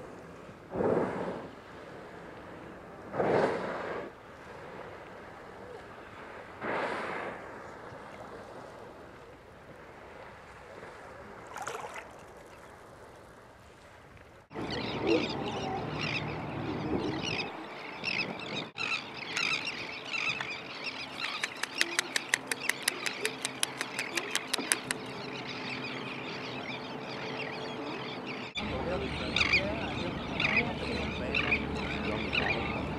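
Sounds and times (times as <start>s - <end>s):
soft wind: 0.0s - 32.9s
water noise: 0.0s - 32.9s
whale blowing breath: 0.7s - 2.2s, 3.1s - 4.8s, 6.2s - 7.7s
splashing: 10.4s - 14.1s.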